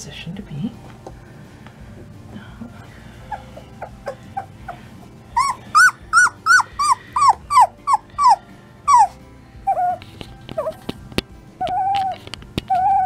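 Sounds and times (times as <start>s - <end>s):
puppy yelping: 3.2s - 10.9s, 11.6s - 13.0s.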